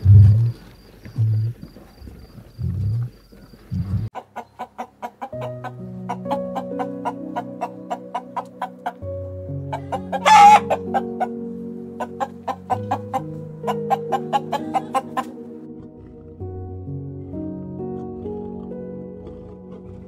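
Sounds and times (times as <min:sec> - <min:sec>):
chicken clucking: 0:00.0 - 0:15.4
chicken squawk: 0:04.2 - 0:11.4, 0:12.0 - 0:15.4
soft background music: 0:04.4 - 0:20.0.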